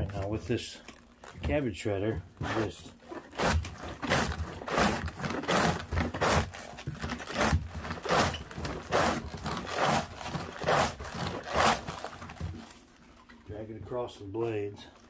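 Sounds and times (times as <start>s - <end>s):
cabbage rasping on slaw cutter: 2.4s - 12.6s.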